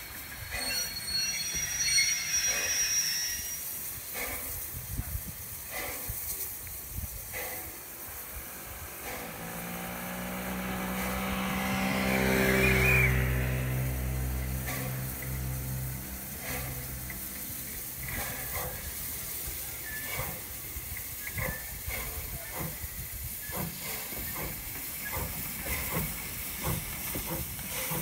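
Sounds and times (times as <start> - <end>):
steam locomotive chuffing: 0.0 - 28.0
steam locomotive hissing: 0.0 - 28.0
vehicle engine hum: 8.0 - 18.8.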